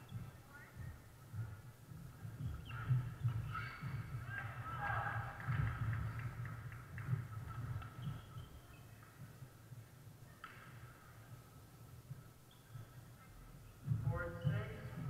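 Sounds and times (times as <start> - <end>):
shoe squeaks: 2.4 - 4.2, 7.8 - 8.9, 12.4 - 13.0.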